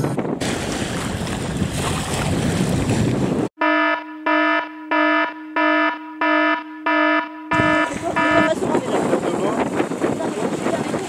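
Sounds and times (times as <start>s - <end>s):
wind: 0.0s - 11.0s
buzzy electronic alarm beeps: 3.6s - 8.6s
rushing water: 7.6s - 11.0s.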